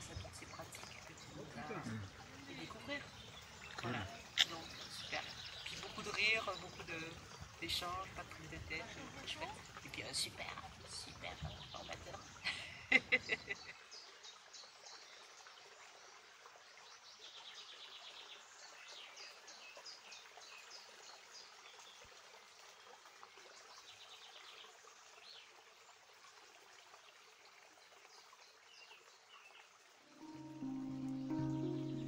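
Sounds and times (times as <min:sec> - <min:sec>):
small birds chirping and trilling: 0:00.0 - 0:16.2.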